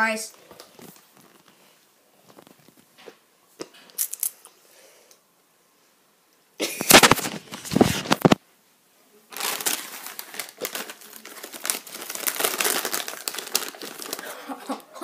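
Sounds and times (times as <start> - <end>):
chip packaging crinkling: 6.8 - 8.4, 9.3 - 14.5.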